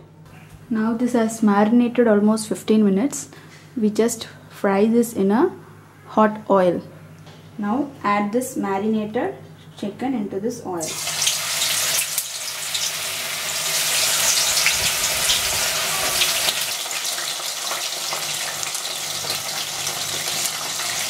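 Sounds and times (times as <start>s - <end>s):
chicken sizzling in hot oil: 10.8s - 21.0s.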